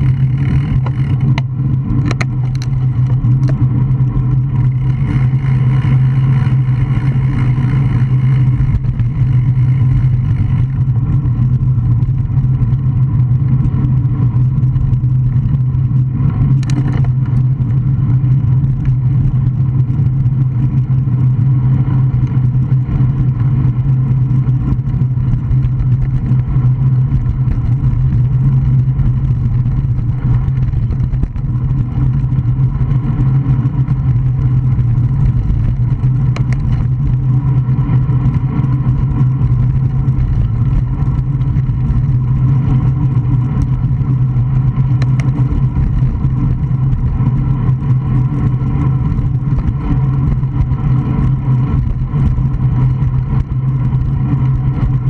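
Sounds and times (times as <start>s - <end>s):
wind and road noise: 0.0s - 55.0s
sharp click: 0.8s - 3.6s.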